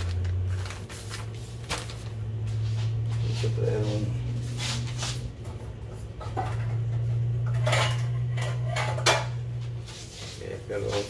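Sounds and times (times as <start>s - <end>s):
steady low hum: 0.0s - 11.0s
dishes and utensils clattering: 5.5s - 9.7s.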